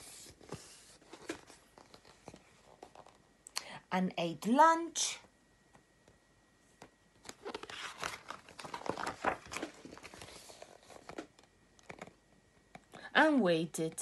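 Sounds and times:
paper page rustling: 0.0 - 3.2, 7.2 - 12.1.

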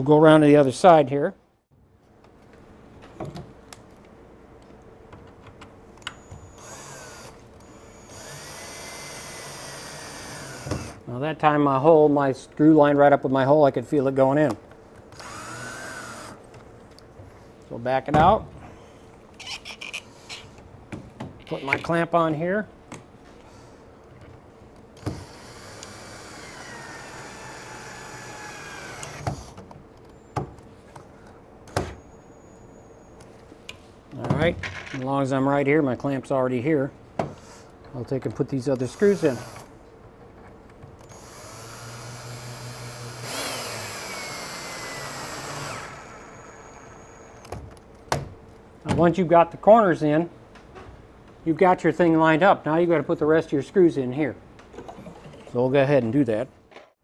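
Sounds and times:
cordless drill driving screw: 6.1 - 11.0, 15.2 - 16.4, 25.0 - 30.2, 38.8 - 39.7, 41.0 - 47.5.

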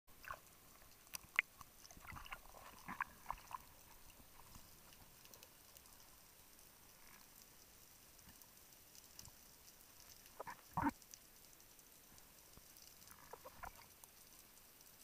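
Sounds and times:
faint steady hiss: 0.1 - 15.0
muffled underwater clicks: 0.2 - 3.7, 10.0 - 11.2, 12.8 - 14.2.

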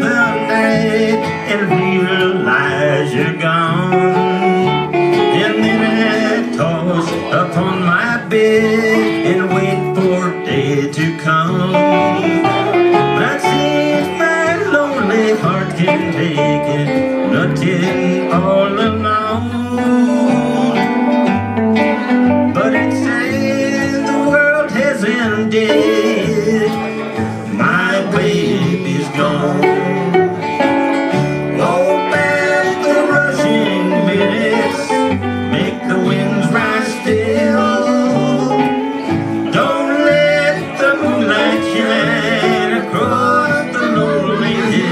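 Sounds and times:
electric guitar lead: 0.0 - 44.9
plucked double bass: 0.0 - 44.9
strummed acoustic guitar: 0.0 - 44.9.

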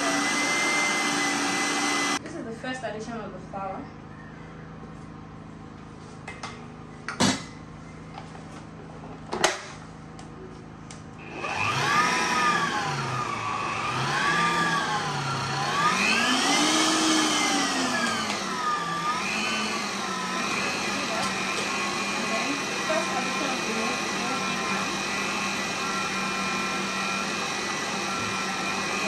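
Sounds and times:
stand mixer motor whining: 0.0 - 2.2, 11.2 - 29.0.

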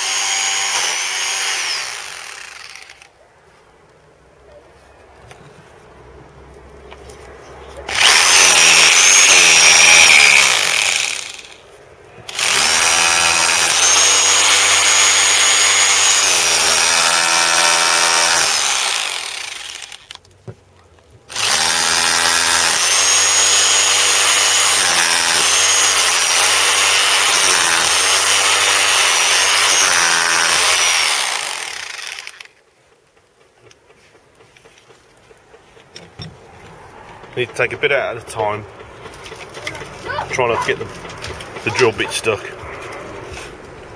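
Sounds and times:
hammer drill hammering into mortar: 0.0 - 3.0, 7.9 - 11.6, 12.3 - 20.1, 21.3 - 32.5.

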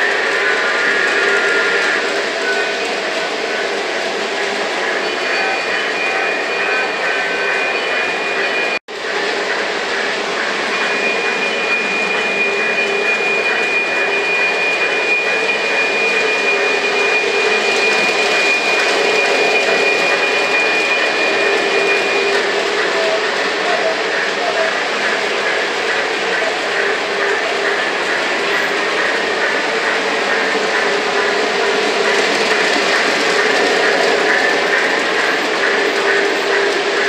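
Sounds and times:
model trains rolling rumble: 0.0 - 37.0
thin high whine: 0.0 - 37.0.

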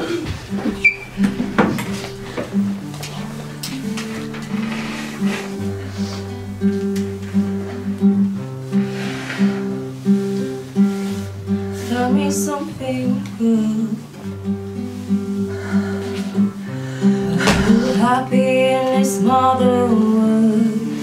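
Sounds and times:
held bass notes: 0.0 - 9.1
acoustic guitar chords: 0.0 - 21.0.

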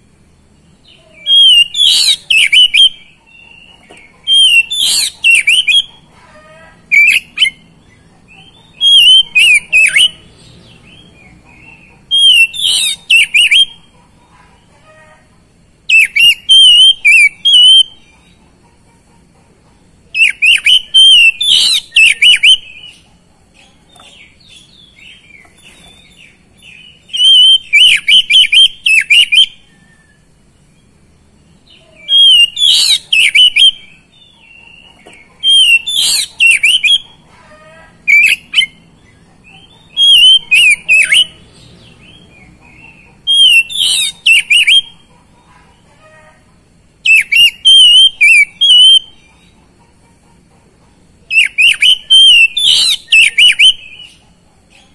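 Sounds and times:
bird singing whistled phrases: 1.2 - 3.2, 4.2 - 5.9, 8.7 - 10.2, 12.1 - 13.9, 15.9 - 18.0, 20.2 - 23.0, 26.8 - 30.2, 32.0 - 34.0, 35.4 - 37.0, 39.9 - 41.4, 43.3 - 45.0, 47.0 - 49.2, 51.3 - 54.2.

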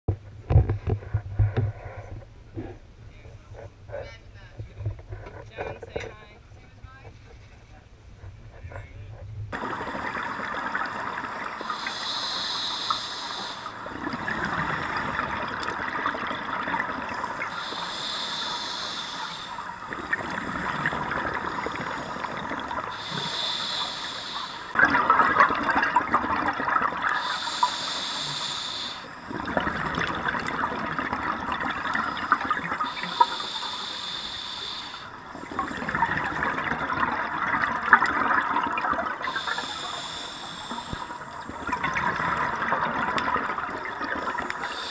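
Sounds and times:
bubbling exhale: 9.6 - 44.9
hissing inhale through regulator: 10.8 - 15.8, 16.8 - 24.8, 27.0 - 30.6, 31.7 - 36.9, 39.2 - 41.9, 44.2 - 44.9.

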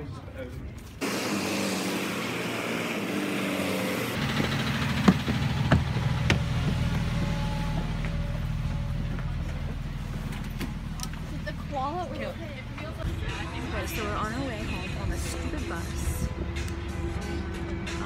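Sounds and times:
bus engine idling: 2.1 - 18.0
footsteps on metal steps: 4.9 - 11.2.

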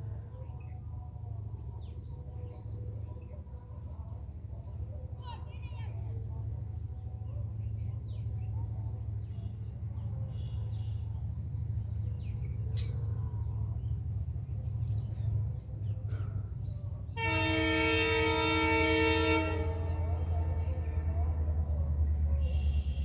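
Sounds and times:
train horn blast: 17.1 - 21.5, 22.1 - 23.0.

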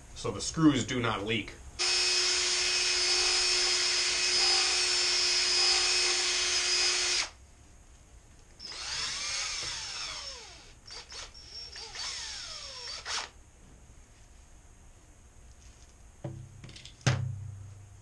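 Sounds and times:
cordless drill whining: 1.8 - 7.4, 8.6 - 13.4.

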